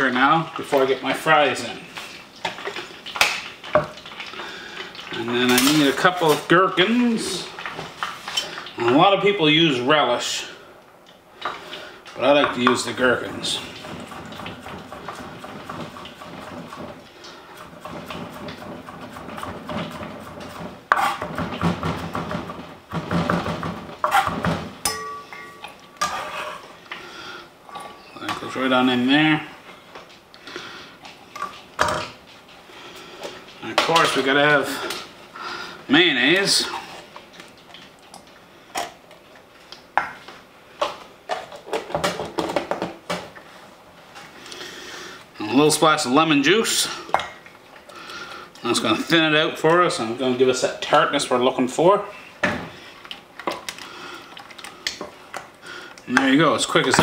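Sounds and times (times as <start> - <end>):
spoon clinking against bowl: 24.9 - 25.8.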